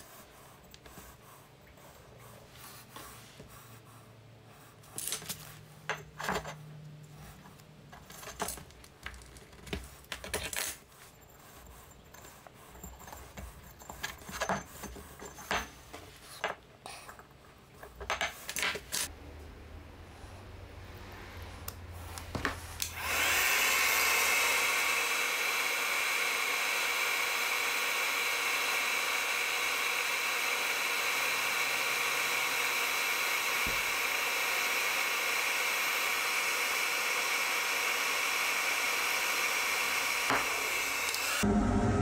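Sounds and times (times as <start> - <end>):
heat gun blowing with whine: 21.6 - 42.0.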